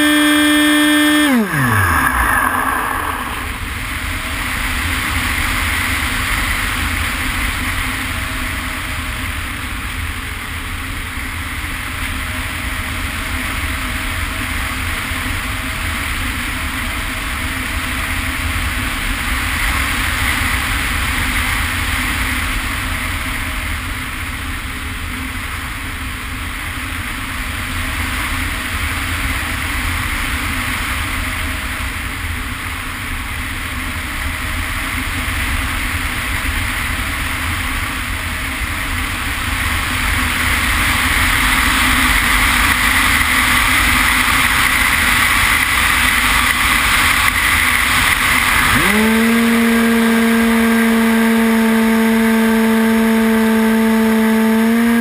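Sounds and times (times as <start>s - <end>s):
electric motor and propeller: 0.0s - 3.8s, 43.4s - 55.0s.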